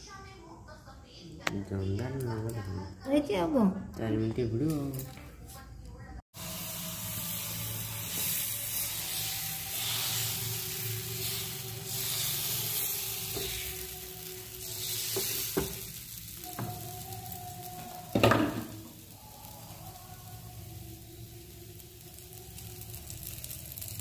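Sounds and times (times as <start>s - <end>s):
batter sizzling on a hot pan: 6.3s - 24.0s.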